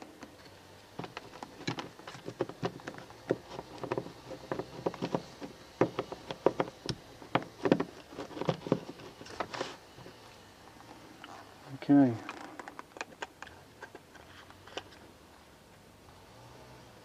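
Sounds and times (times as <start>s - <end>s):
hard plastic parts clicking: 0.0s - 10.2s, 12.1s - 15.0s.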